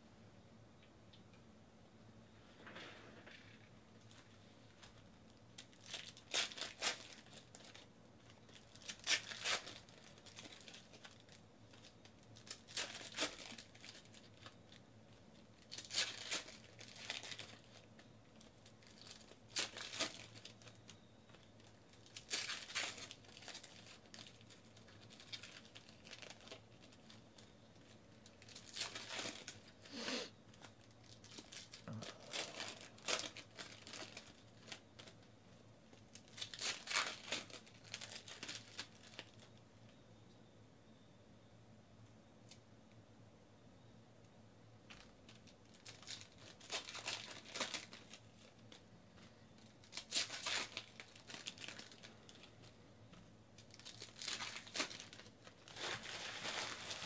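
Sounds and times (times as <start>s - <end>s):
card wrappers tearing and crinkling: 4.8s - 14.8s, 15.4s - 35.2s, 36.0s - 39.5s, 44.9s - 48.8s, 49.6s - 52.7s, 53.6s - 57.0s.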